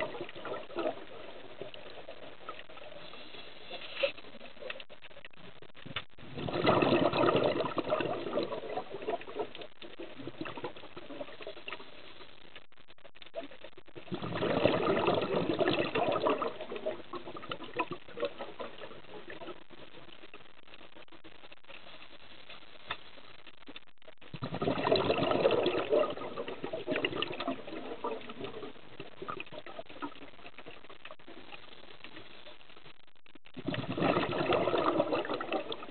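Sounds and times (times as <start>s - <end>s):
faint clicks: 0.0s - 6.2s, 9.0s - 14.0s, 17.4s - 24.3s
underwater bubbles gurgling: 0.0s - 35.9s.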